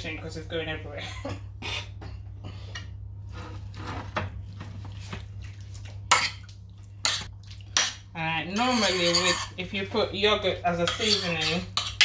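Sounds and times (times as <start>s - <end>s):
spoon stirring in a bowl: 4.7s - 9.6s, 10.8s - 12.0s.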